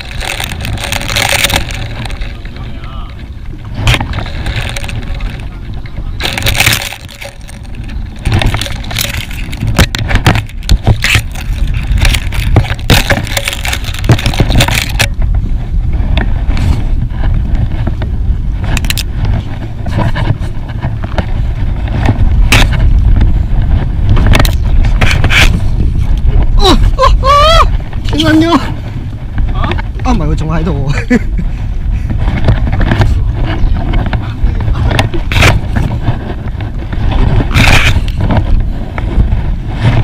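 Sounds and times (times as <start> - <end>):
hands handling fishing line: 0.0 - 2.5, 3.8 - 5.5, 6.2 - 15.2
steady low rumble: 0.0 - 40.0.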